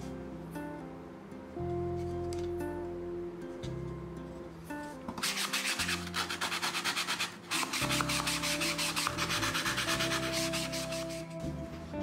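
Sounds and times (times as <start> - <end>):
hand file rasping on wood board: 5.2 - 11.3.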